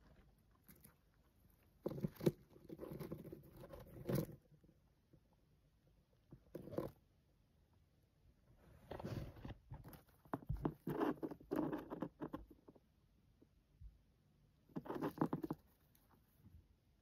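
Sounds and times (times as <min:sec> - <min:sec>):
hamster gnawing peanut shell: 0:00.0 - 0:05.2, 0:09.4 - 0:12.9, 0:14.7 - 0:16.1.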